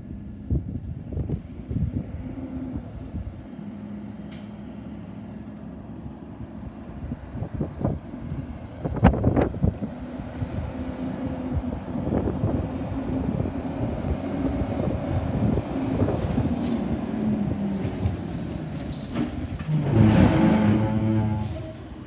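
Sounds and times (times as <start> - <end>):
garbage truck diesel engine: 9.9 - 22.0.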